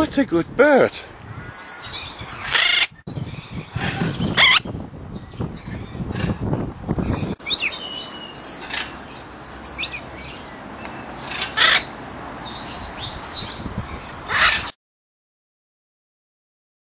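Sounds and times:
parrot harsh squawks: 1.5s - 2.9s, 3.8s - 4.7s, 11.3s - 11.9s, 14.3s - 14.7s
parrot chirps and whistles: 4.3s - 4.7s.

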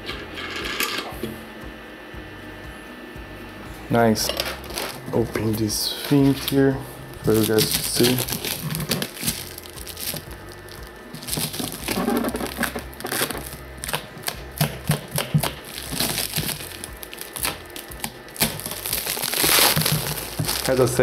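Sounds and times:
plastic wrap crinkling: 4.2s - 21.0s.

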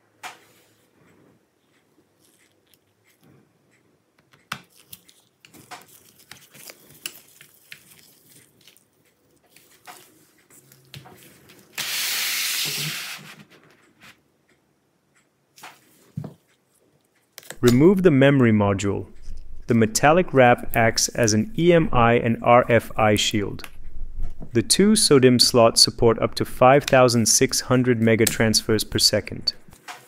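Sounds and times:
loud rushing hiss: 11.8s - 13.2s.

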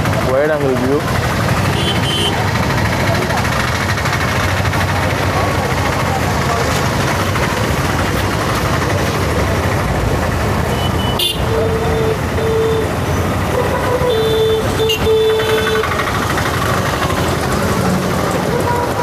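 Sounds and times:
traffic rush: 0.0s - 19.0s
vehicle horns honking: 1.6s - 2.5s, 10.7s - 16.0s, 18.5s - 19.0s.

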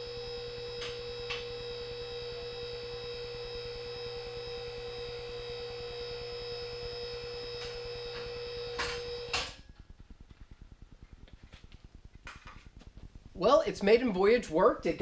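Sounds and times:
hydraulic pump motor humming: 0.0s - 9.6s.

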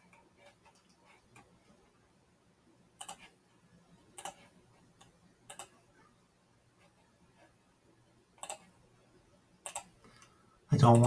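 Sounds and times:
computer mouse clicking: 3.0s - 3.4s, 4.2s - 5.8s, 8.4s - 8.7s, 9.6s - 11.0s.

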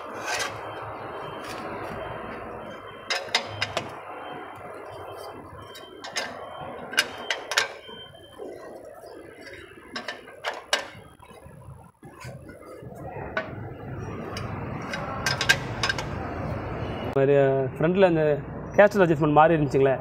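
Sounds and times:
steady background noise: 0.0s - 20.0s
spanner clinking on bolt: 3.1s - 3.9s, 5.6s - 8.0s, 14.3s - 16.2s.

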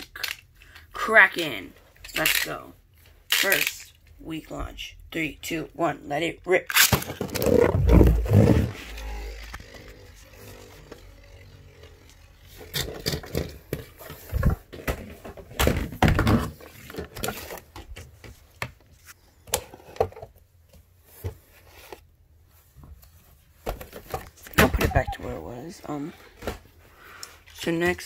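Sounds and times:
knocks and scrapes: 7.0s - 20.3s
spinning top whirring: 8.2s - 13.2s.

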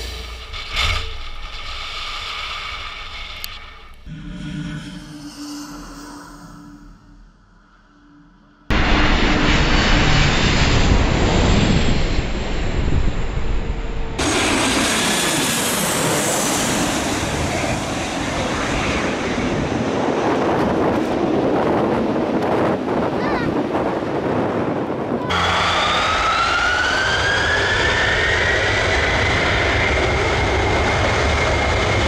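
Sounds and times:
high engine whine: 0.0s - 23.0s, 24.0s - 32.0s
jet engines roaring overhead: 8.7s - 32.0s.

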